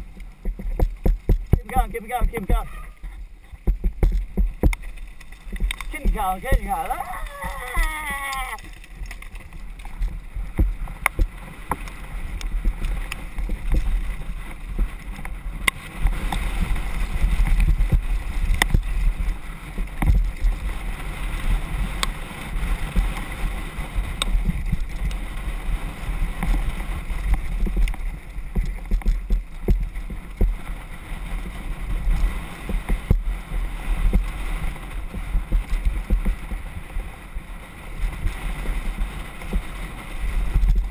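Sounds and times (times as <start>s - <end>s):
bike clicks and knocks: 0.0s - 20.6s, 24.0s - 25.3s
wind rumble on microphone: 0.0s - 40.9s
tyres rattling over stones: 0.3s - 12.0s.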